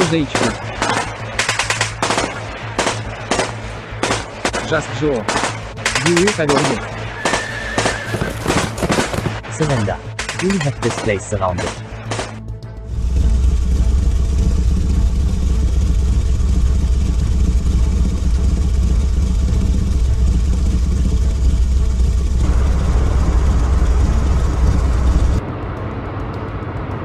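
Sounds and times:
rattling mid-range noise: 0.0 - 7.0, 8.5 - 12.4
tracked vehicle engine: 0.0 - 27.0
low motorcycle engine rumble: 12.5 - 27.0.

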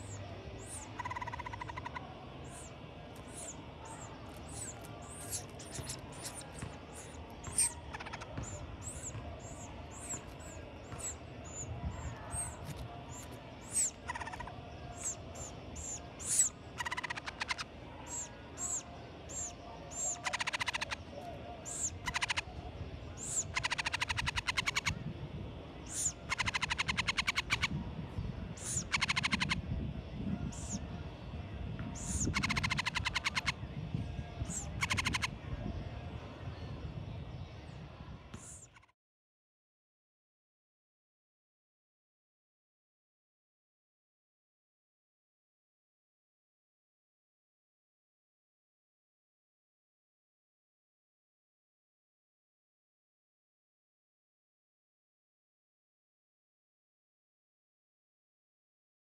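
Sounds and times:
nestlings chirping: 0.0 - 21.0, 21.6 - 22.4, 23.2 - 24.9, 25.9 - 27.7, 28.6 - 29.6, 30.5 - 30.8, 32.0 - 33.5, 34.5 - 35.3.

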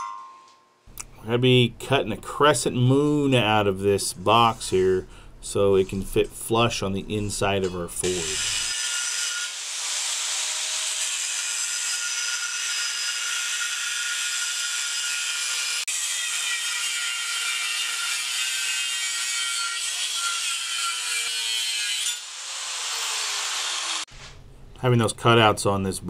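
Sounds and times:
angle grinder cutting metal: 7.7 - 24.1.

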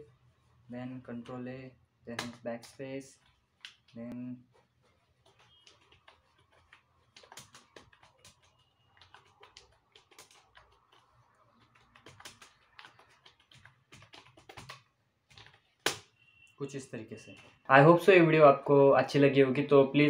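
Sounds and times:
faint keyboard typing: 2.1 - 16.1.

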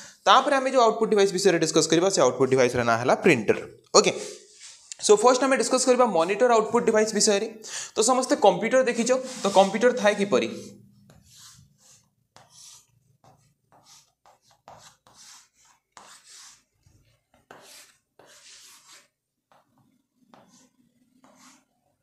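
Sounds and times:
chalk scraping on chalkboard: 4.2 - 4.9, 8.9 - 21.8.

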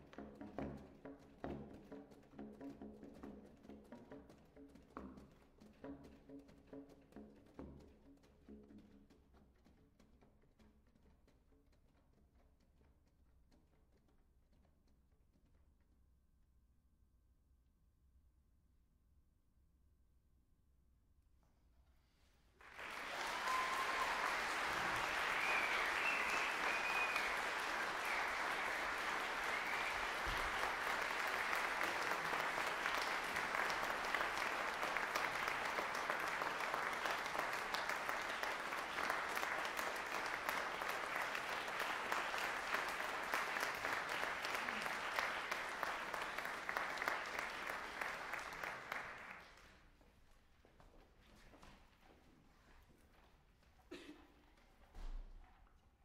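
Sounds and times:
audience cheering: 22.6 - 49.4
audience applauding: 22.6 - 49.7.

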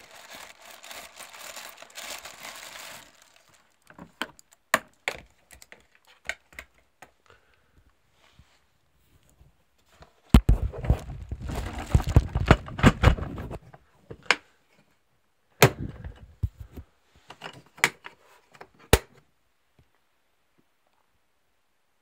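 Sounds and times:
plastic bag rustling: 0.0 - 4.5, 10.5 - 13.6
plastic pail knocking: 10.4 - 13.5.

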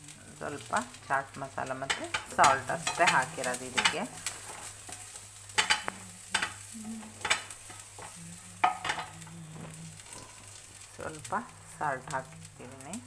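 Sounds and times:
corn sizzling in butter: 0.0 - 13.0
spatula scraping a frying pan: 1.6 - 10.8.

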